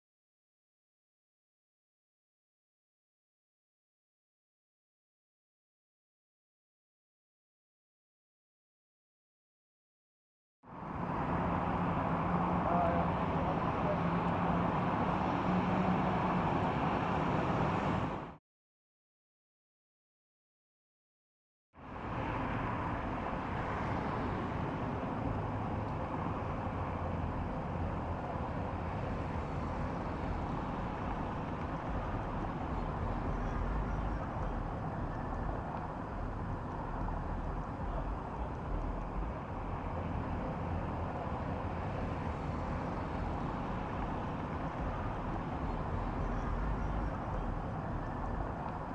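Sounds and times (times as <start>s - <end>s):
low rumble and hiss: 24.1s - 48.9s.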